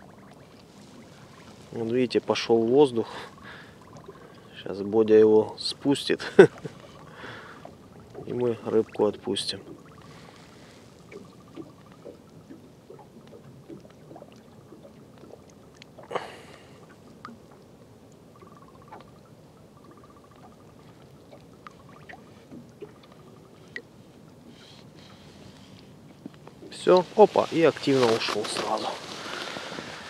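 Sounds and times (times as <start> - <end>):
water trickling and splashing: 0.0 - 30.0.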